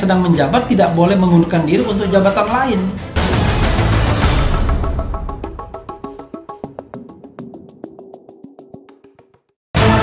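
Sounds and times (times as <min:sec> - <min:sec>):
news ident music: 0:00.7 - 0:08.0, 0:09.8 - 0:10.0.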